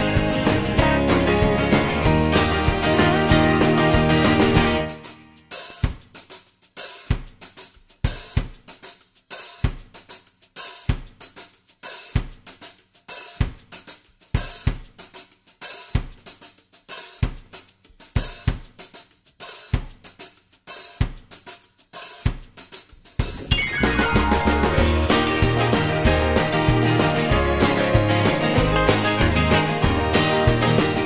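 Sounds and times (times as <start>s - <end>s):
hi-hat and cymbal strokes: 4.8s - 31.0s
kick drum: 8.1s - 8.6s, 14.4s - 15.0s.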